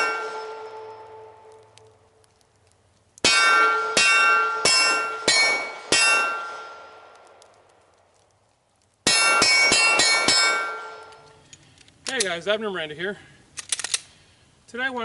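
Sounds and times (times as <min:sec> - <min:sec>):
steel target clanging: 0:00.0 - 0:01.4, 0:03.2 - 0:06.9, 0:09.1 - 0:11.2.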